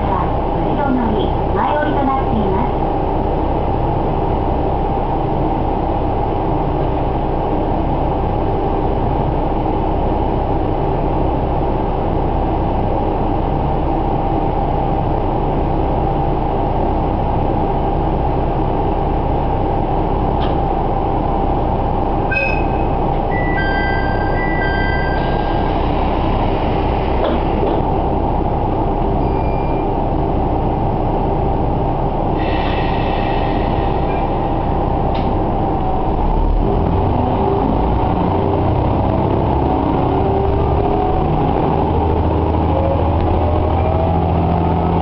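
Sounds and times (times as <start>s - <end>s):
diesel railcar engine idling: 0.0s - 45.0s
electronic chime tones: 22.3s - 25.4s.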